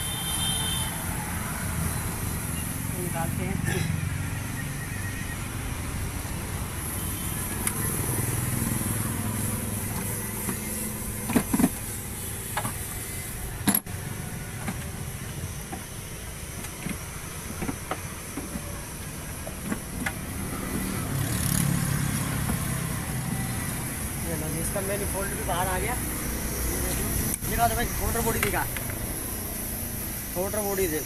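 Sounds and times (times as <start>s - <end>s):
engine parts clicking and knocking: 7.4s - 25.9s, 26.5s - 29.1s.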